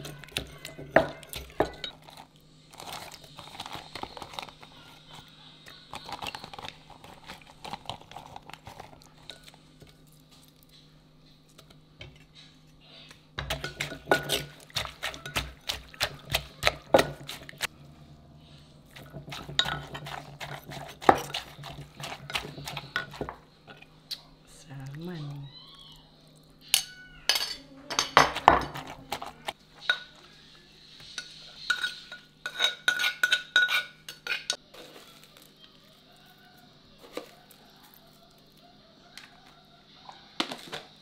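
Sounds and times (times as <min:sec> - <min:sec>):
metal spoon scraping: 0:00.0 - 0:10.1, 0:13.4 - 0:17.7, 0:18.8 - 0:23.9, 0:26.6 - 0:30.2, 0:30.9 - 0:35.4
low steady hum: 0:00.0 - 0:34.7.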